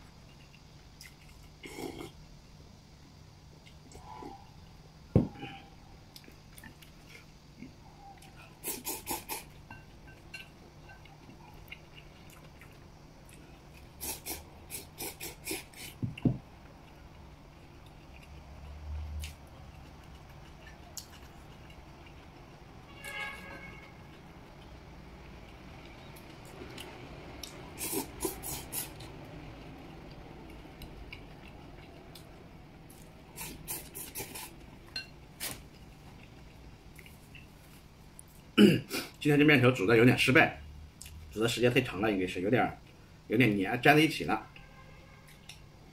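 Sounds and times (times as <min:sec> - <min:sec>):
chewing: 0:00.2 - 0:02.2, 0:06.1 - 0:16.0, 0:16.6 - 0:22.5, 0:30.5 - 0:32.3, 0:32.9 - 0:38.4
man slurping noodles: 0:08.6 - 0:09.5, 0:14.0 - 0:16.0, 0:27.7 - 0:29.0, 0:33.3 - 0:34.6.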